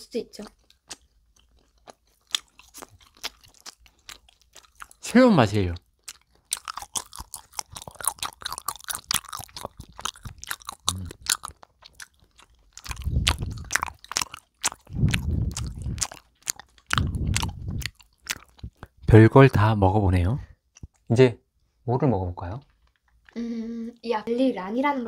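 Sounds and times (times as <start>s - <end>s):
crisp crackly chewing: 0.3s - 19.6s, 20.7s - 21.1s, 22.6s - 23.4s
muffled mouth noise: 10.8s - 11.3s, 12.8s - 14.0s, 14.9s - 16.2s, 16.9s - 19.0s.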